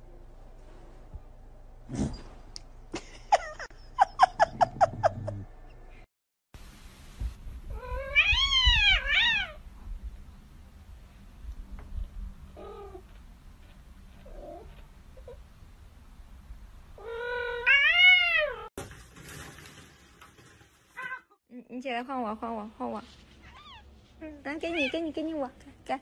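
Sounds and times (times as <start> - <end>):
cat yowling: 7.7 - 9.6, 17.0 - 18.7
cats crying: 7.8 - 9.6, 17.0 - 18.7.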